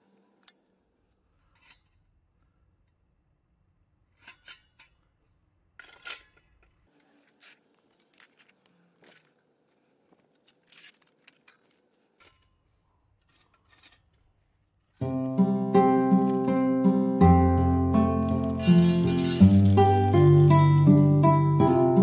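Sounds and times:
metal stoves clinking on stone: 18.1s - 20.4s.

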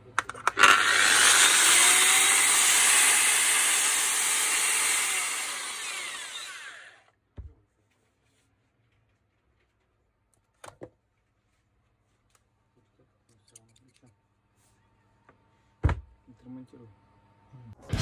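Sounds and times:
angle grinder spinning down: 0.4s - 7.0s.

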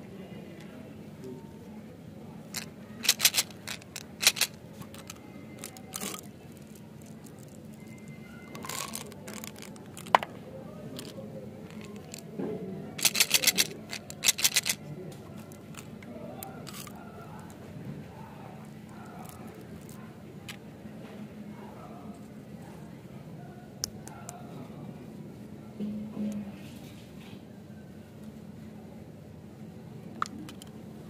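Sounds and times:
candies rattling in plastic tube: 2.5s - 10.3s, 11.7s - 12.2s, 13.0s - 14.8s, 16.6s - 16.9s.

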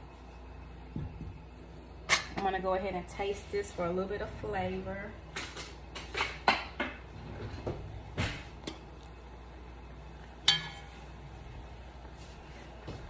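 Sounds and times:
metal spoon clinking on pot: 10.4s - 11.0s.

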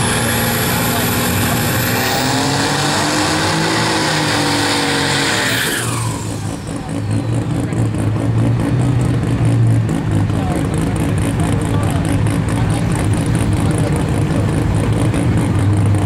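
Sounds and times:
spinning tyres hissing: 0.0s - 7.9s
truck engine revving: 0.0s - 16.0s.

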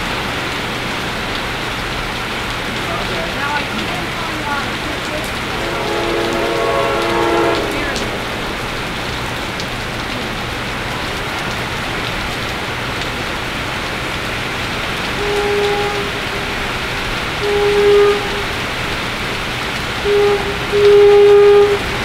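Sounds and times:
heavy rain hissing: 0.0s - 22.0s
train horn chord: 5.0s - 9.1s, 15.1s - 19.0s, 19.9s - 22.0s.

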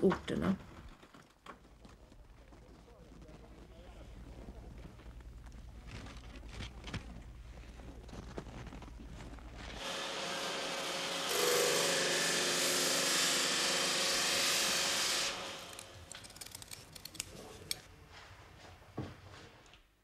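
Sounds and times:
sander motor hum: 9.8s - 15.9s
wood grinding on sanding disc: 9.8s - 15.9s
scissors cutting paper: 15.7s - 17.8s.

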